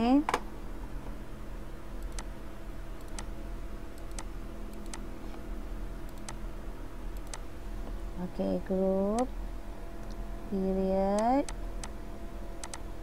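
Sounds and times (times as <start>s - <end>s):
steady low hum: 0.0s - 13.0s
computer mouse clicks: 2.0s - 2.3s, 3.0s - 3.3s, 4.0s - 5.0s, 6.1s - 6.4s, 7.2s - 7.4s, 12.6s - 12.9s.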